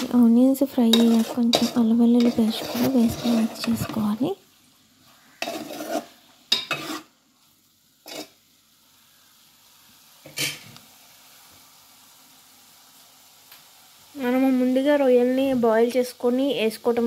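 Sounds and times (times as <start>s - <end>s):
frying sizzle: 0.0s - 17.0s
metal spoon scraping a pot: 0.8s - 4.1s, 5.3s - 7.2s, 8.0s - 8.4s.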